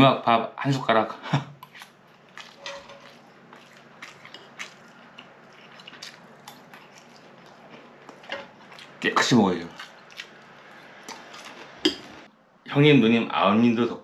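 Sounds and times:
person chewing: 0:01.6 - 0:09.0, 0:09.6 - 0:12.3.

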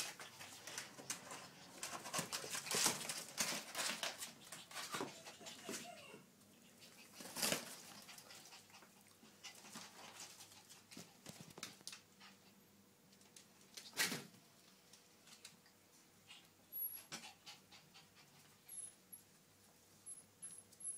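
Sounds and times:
puppies scuffling and playing: 0:00.0 - 0:20.9.

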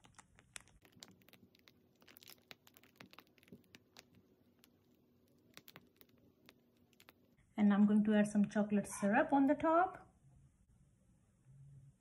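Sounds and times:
plastic piping bag crinkling: 0:00.0 - 0:07.4.

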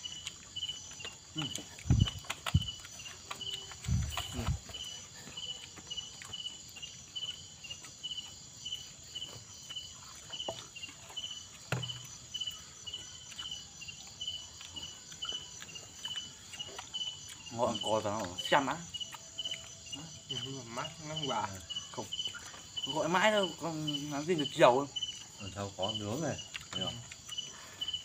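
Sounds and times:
chewing and handling food: 0:00.0 - 0:28.0
crickets chirping: 0:00.0 - 0:28.0
high insect drone: 0:00.0 - 0:28.0.

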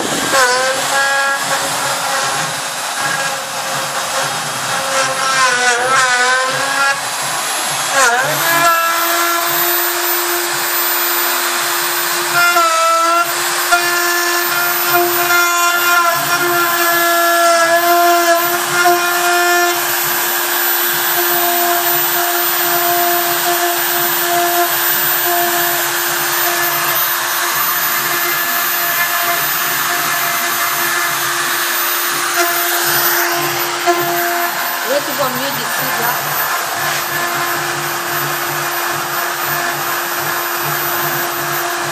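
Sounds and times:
router spindle cutting wood: 0:00.0 - 0:41.9
drive motors whining: 0:24.9 - 0:41.9.

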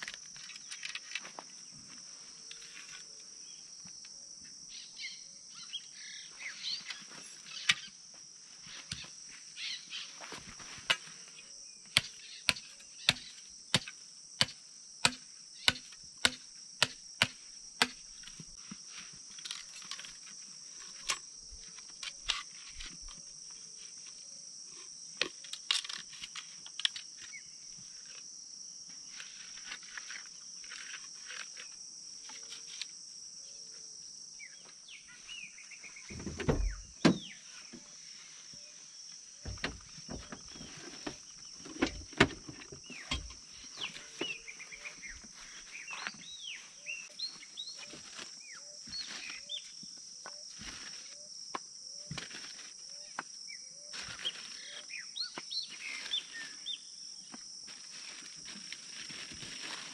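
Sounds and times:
birds chirping and singing: 0:34.4 - 0:49.8.

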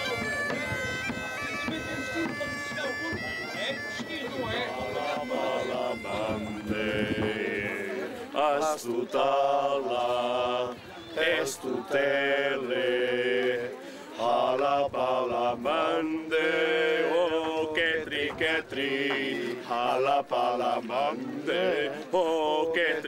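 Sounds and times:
group of voices chanting: 0:04.6 - 0:23.0.

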